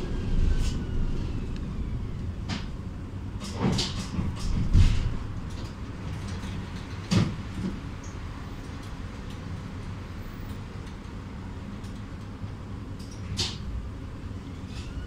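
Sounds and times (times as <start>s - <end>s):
tram running rumble: 0.0s - 15.0s
knocks and heavy low thump: 4.2s - 5.3s.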